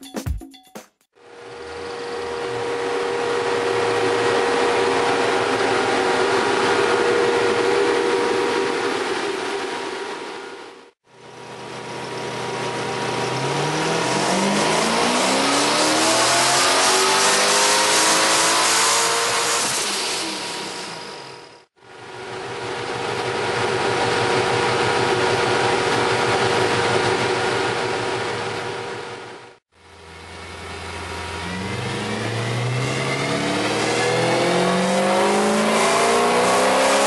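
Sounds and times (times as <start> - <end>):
engine running at steady revs: 1.2 - 21.1, 22.2 - 37.0
engine revving at full throttle: 1.4 - 10.1, 12.3 - 21.1, 30.2 - 37.0.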